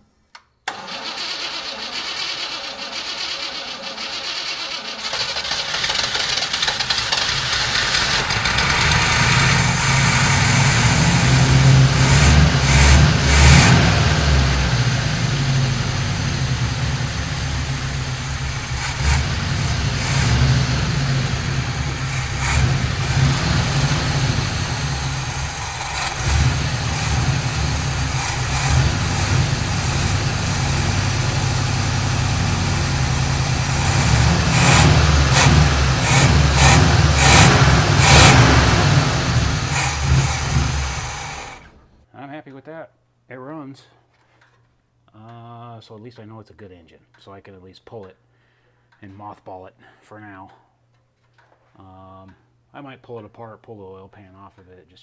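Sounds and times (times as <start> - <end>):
pickup engine revving: 0.7 - 41.8.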